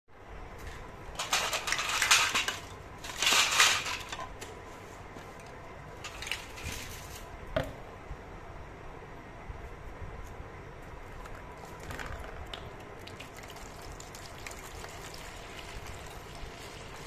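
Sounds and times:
plastic pieces clattering in steel bowl: 0:01.2 - 0:04.3.

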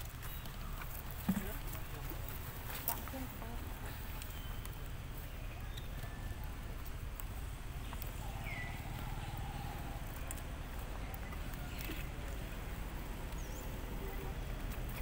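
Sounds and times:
faint clicks: 0:05.6 - 0:12.6.

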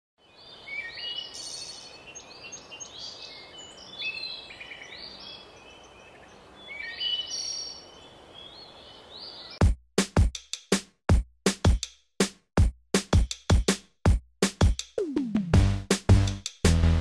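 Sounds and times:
birds chirping and trilling: 0:00.2 - 0:09.6
faint outdoor background hiss: 0:00.2 - 0:09.6.

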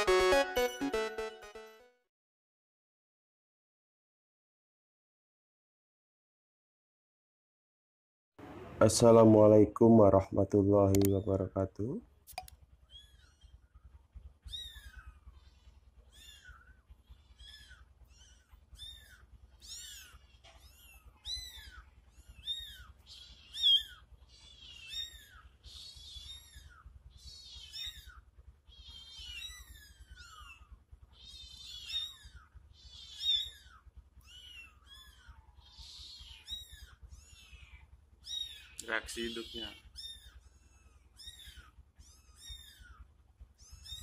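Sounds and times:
kittens mewing: 0:12.8 - 0:44.0.

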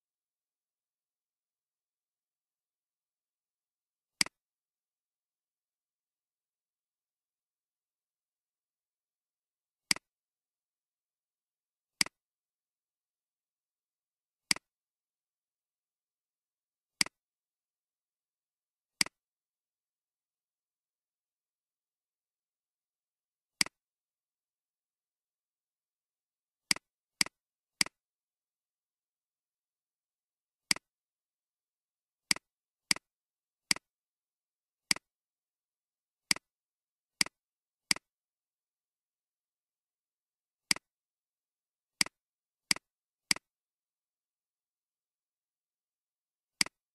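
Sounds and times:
computer mouse clicks: 0:09.9 - 0:10.1, 0:30.7 - 0:30.9, 0:34.9 - 0:35.1, 0:36.3 - 0:36.5, 0:37.2 - 0:38.1, 0:40.7 - 0:40.9, 0:42.0 - 0:43.5, 0:46.6 - 0:46.8.

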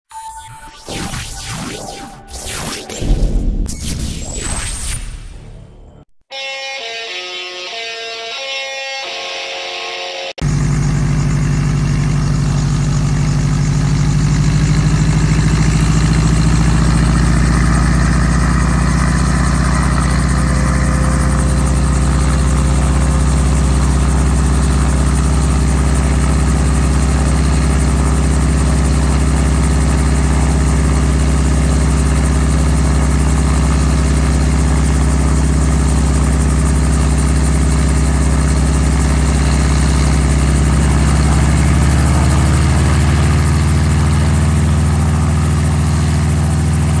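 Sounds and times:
helicopter engine droning: 0:10.3 - 0:47.0.

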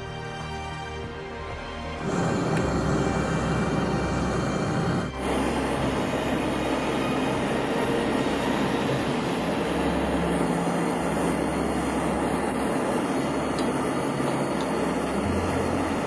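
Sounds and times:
gas torch hissing: 0:02.0 - 0:16.0
low hum: 0:02.0 - 0:16.0.

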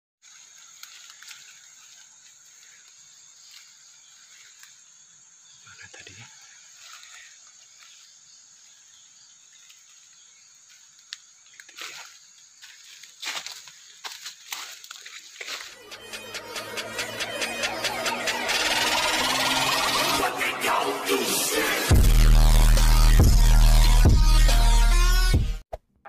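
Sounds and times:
leaves rustling: 0:00.2 - 0:05.3, 0:06.5 - 0:16.6
forest insects droning: 0:00.2 - 0:22.6.

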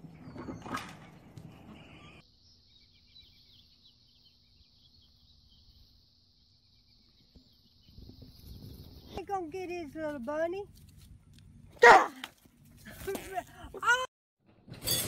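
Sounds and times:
distant bird chirps: 0:00.0 - 0:09.7
rough outdoor noise: 0:00.0 - 0:15.0.

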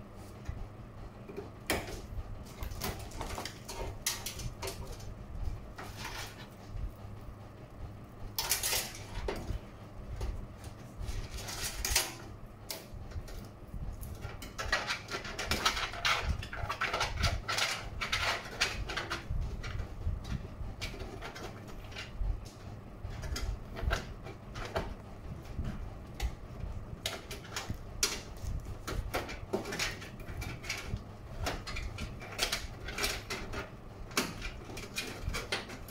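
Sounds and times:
clicks rattles and scrapes in metal case: 0:14.1 - 0:25.0, 0:27.0 - 0:35.9.

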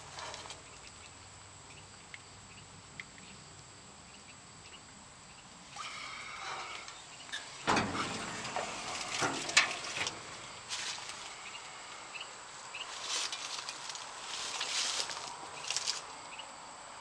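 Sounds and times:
metal cover clunk: 0:06.4 - 0:11.0
sharp metal clicks and knocks: 0:06.7 - 0:10.4
rustling and handling noise: 0:06.8 - 0:11.4, 0:12.8 - 0:16.1.

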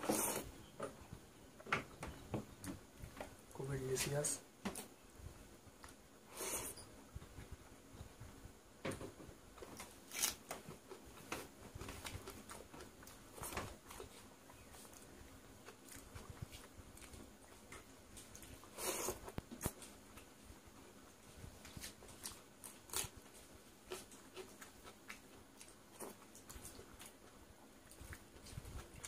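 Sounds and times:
person chewing and smacking: 0:09.6 - 0:20.4, 0:21.0 - 0:29.0.

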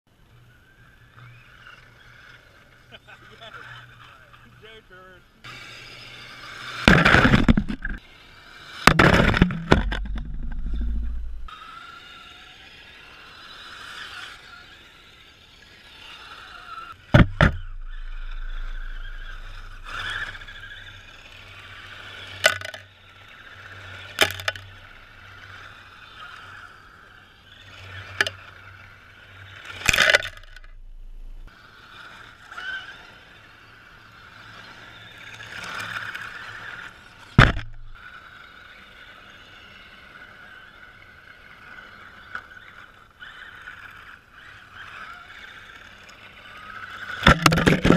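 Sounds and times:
electric motor whining: 0:05.5 - 0:22.7
sharp knocks and clatters: 0:08.9 - 0:11.0, 0:17.1 - 0:18.7, 0:37.4 - 0:38.0, 0:47.2 - 0:47.9
tires spraying gravel: 0:16.8 - 0:22.7.

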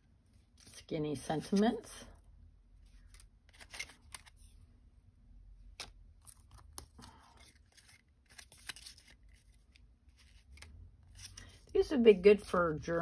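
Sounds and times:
cardstock pieces clicking and rustling: 0:05.8 - 0:11.5.

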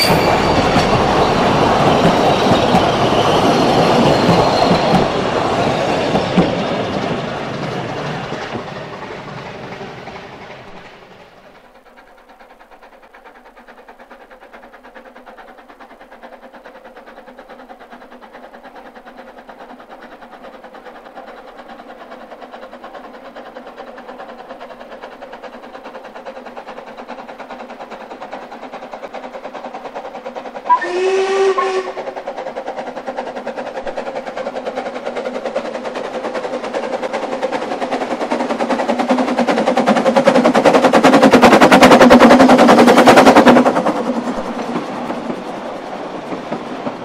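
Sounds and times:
steam locomotive exhaust beats: 0:00.0 - 0:47.0
steam whistle blast: 0:30.7 - 0:32.1.

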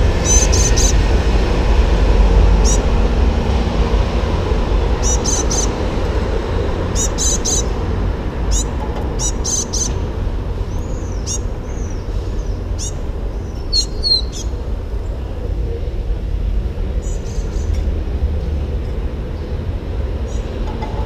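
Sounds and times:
street traffic rumble: 0:00.0 - 0:21.0
songbirds chirping: 0:02.5 - 0:02.9, 0:04.9 - 0:21.0.

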